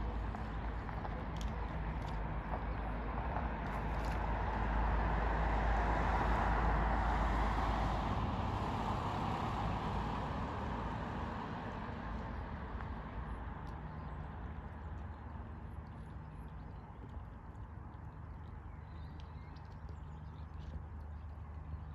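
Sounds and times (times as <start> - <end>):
passing vehicle road noise: 3.1 - 13.6.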